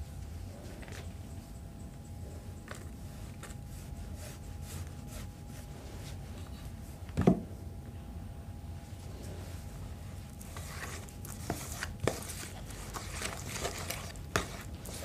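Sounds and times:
faint steady hum: 0.0s - 15.0s
leaves clicking and scraping: 10.4s - 15.0s.

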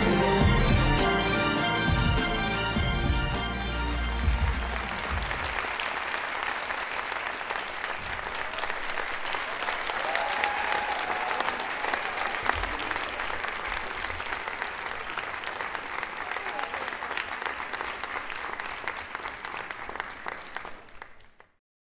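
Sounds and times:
performance music: 0.0s - 7.0s
audience applauding: 0.0s - 21.6s.

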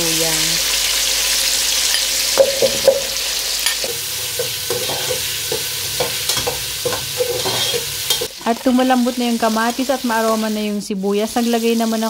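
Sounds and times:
vegetables sizzling in hot oil: 0.0s - 12.0s
metal spoon scraping a pot: 3.6s - 8.3s.

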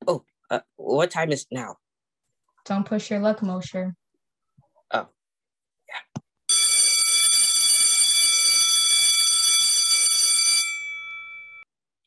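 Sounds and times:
electric bell ringing: 6.5s - 11.7s.

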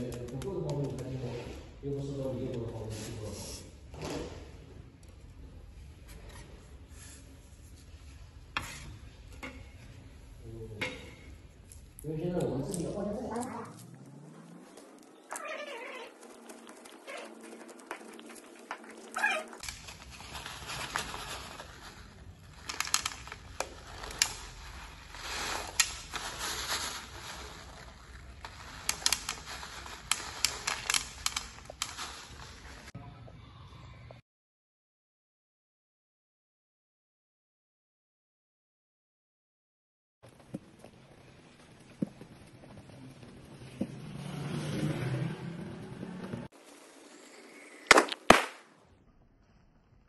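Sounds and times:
paper crackling and rustling: 12.7s - 33.0s
pellets clicking into plastic tray: 22.5s - 25.0s, 28.4s - 32.6s.

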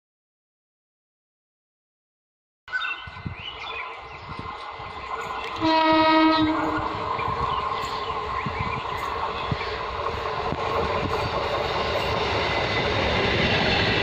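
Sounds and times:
train rumble: 3.0s - 14.0s
train horn blast: 5.6s - 7.0s.

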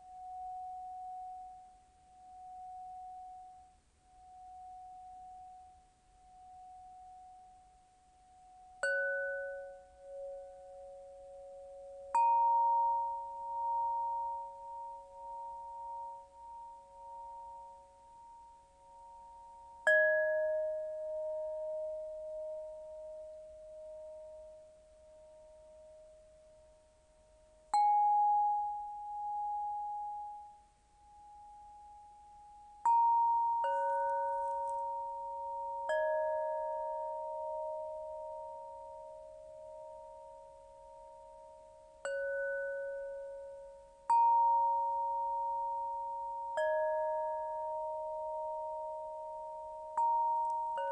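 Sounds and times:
crystal rods ringing bell-like: 8.5s - 25.9s, 27.7s - 50.9s.

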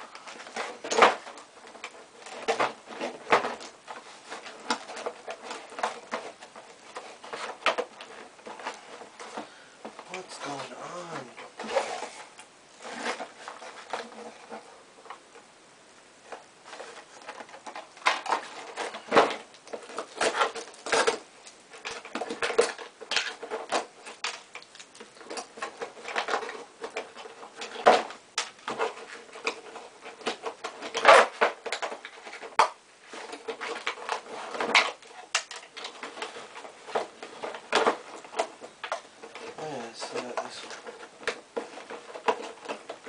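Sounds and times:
cardboard box rustling: 0.0s - 15.2s.

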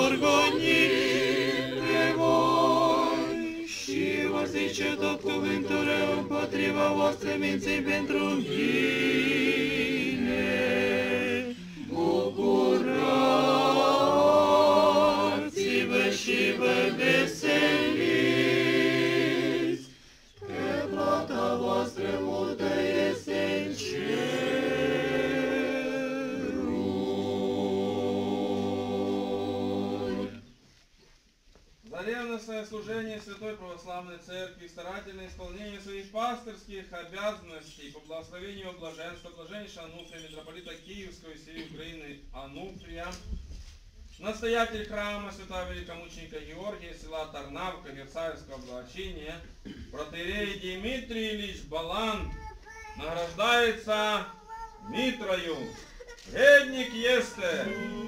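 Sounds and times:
church choir singing a hymn: 0.0s - 30.5s, 56.3s - 58.0s.

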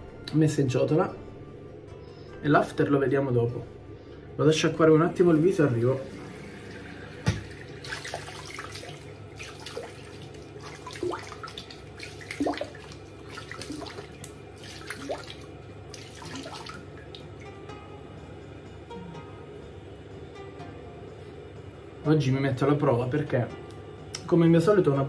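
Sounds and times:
tap running into sink: 7.1s - 8.9s
water splashing on face: 7.2s - 17.2s.

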